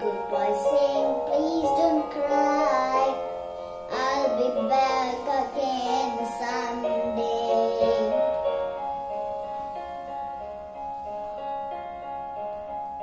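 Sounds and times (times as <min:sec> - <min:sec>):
boy singing: 0:00.0 - 0:03.3, 0:03.9 - 0:08.3
instrumental backing music: 0:00.0 - 0:13.0.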